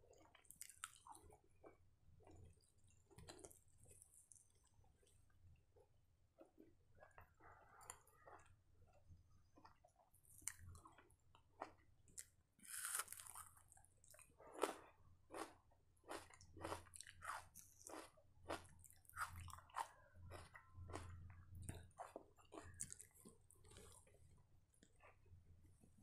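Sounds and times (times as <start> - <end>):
chewing and mouth smacks: 0.1 - 5.2, 9.5 - 24.2.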